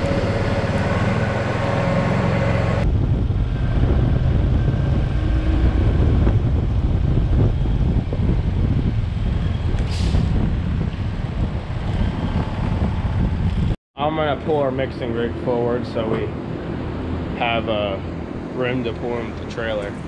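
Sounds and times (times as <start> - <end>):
vehicle engine running: 0.0 - 9.8
wind buffeting microphone: 0.0 - 13.8.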